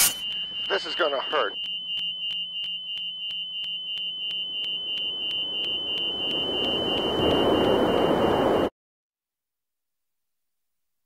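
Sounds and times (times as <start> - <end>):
high-pitched warning alarm beeps: 0.0 - 8.7
rushing noise: 4.5 - 8.7.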